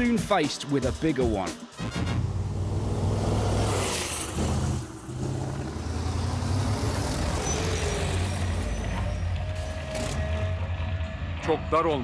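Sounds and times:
diesel truck engine running hard: 0:02.2 - 0:10.9.

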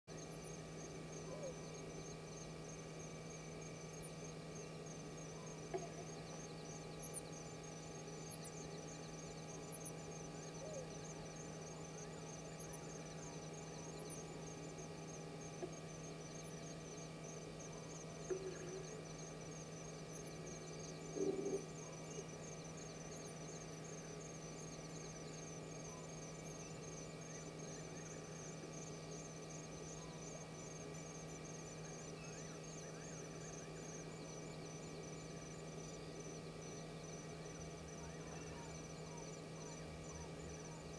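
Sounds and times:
electrical hum: 0:00.0 - 0:40.9
insects chirping: 0:00.1 - 0:40.9.

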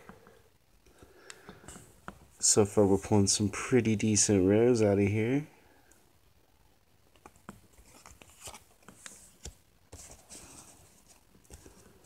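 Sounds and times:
crinkly wrapper rustles: 0:07.2 - 0:09.6.

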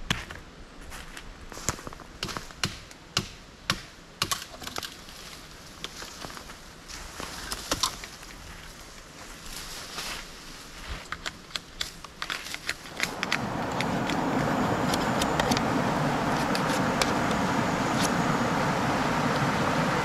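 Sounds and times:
machete clicking on bamboo: 0:11.1 - 0:14.2
river rushing: 0:12.9 - 0:20.0.

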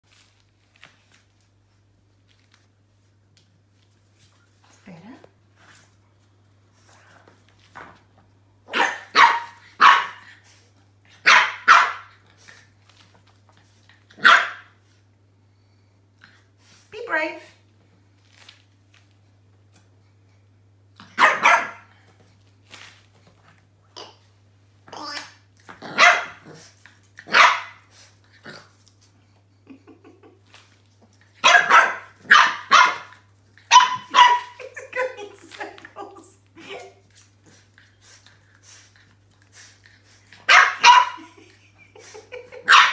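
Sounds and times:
puppy barking: 0:08.7 - 0:10.2, 0:11.2 - 0:12.2, 0:14.2 - 0:14.7, 0:21.1 - 0:21.9, 0:25.9 - 0:26.5, 0:27.2 - 0:27.8, 0:31.4 - 0:34.7, 0:40.5 - 0:41.3, 0:42.6 - 0:42.9.

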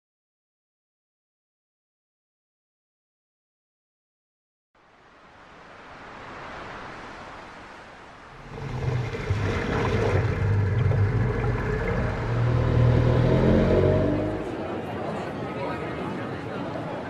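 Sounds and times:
surf washing on shore: 0:04.9 - 0:14.6
boat engines droning: 0:08.4 - 0:17.0.

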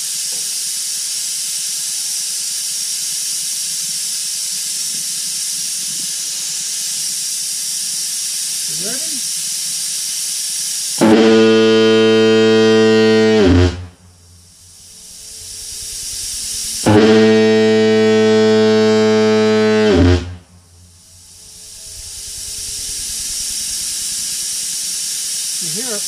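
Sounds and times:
air hissing: 0:00.0 - 0:26.0
deep fog horn blasts: 0:11.0 - 0:25.5.

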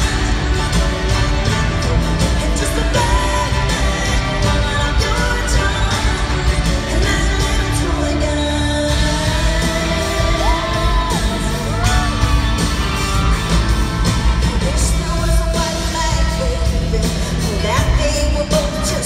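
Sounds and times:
live band playing country pop: 0:00.0 - 0:19.0
woman singing lead vocal: 0:02.2 - 0:12.4, 0:14.4 - 0:19.0
crowd shouting: 0:09.6 - 0:14.5.

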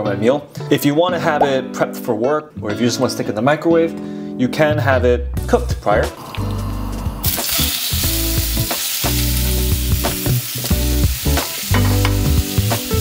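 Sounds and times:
food sizzling in a frying pan: 0:07.2 - 0:13.0.

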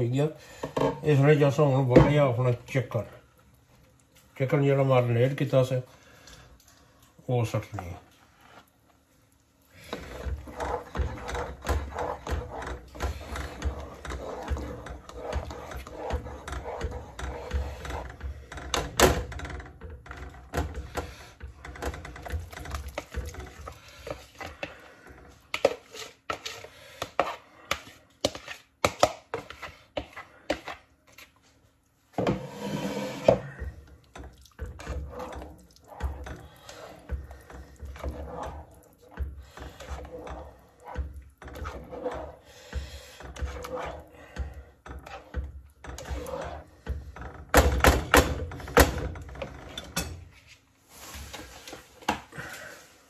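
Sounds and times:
spatula scraping a bowl: 0:09.8 - 0:31.4, 0:32.2 - 0:51.8.

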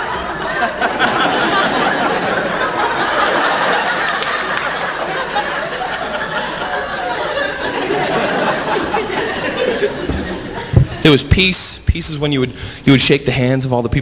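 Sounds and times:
audience laughing: 0:00.0 - 0:11.3.

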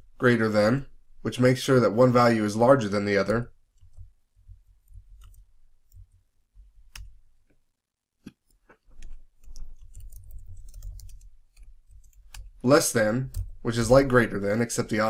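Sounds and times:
keyboard typing: 0:08.5 - 0:14.4.

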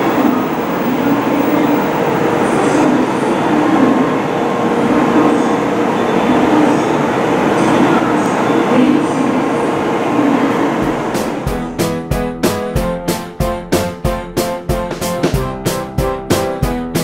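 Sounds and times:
train wheels rumbling: 0:00.0 - 0:12.7.

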